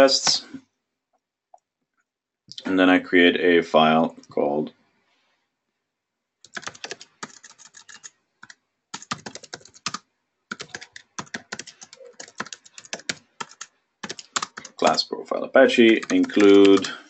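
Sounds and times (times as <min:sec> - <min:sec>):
computer keyboard typing: 0:06.4 - 0:14.9, 0:15.9 - 0:17.0.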